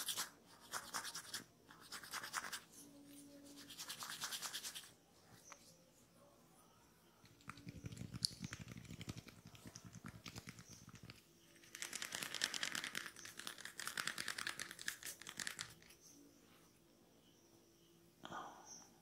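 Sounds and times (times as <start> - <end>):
fingers rubbing scalp: 0.0 - 2.7, 3.4 - 5.0, 7.2 - 16.0
hair crackling between fingers: 7.2 - 16.1.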